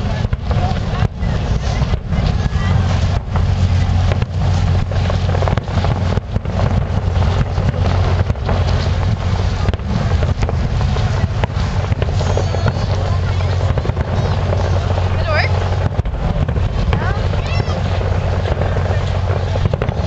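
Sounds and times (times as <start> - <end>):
fireworks bangs: 0.0 - 20.0
low rumble: 0.0 - 20.0.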